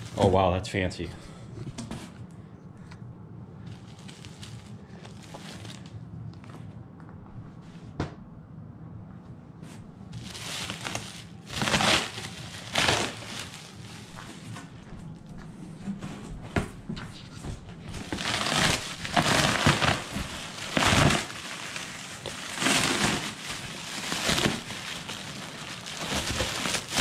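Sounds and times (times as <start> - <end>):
plastic sheeting crinkling: 0.0 - 0.4, 3.6 - 6.0, 10.1 - 15.3, 17.5 - 27.0.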